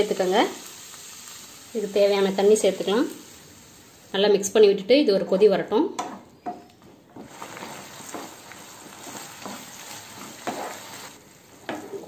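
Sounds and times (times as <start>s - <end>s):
food sizzling in a pan: 0.0s - 4.9s, 7.2s - 12.0s
spatula stirring in a pan: 7.2s - 12.0s.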